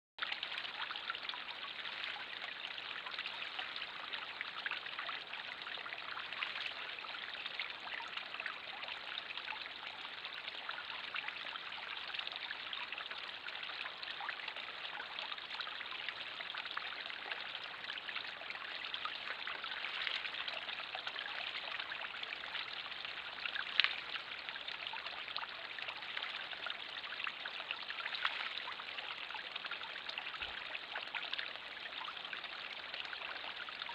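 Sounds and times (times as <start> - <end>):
fountain bubbling: 0.2 - 33.9
water spilling into pond: 0.2 - 33.9.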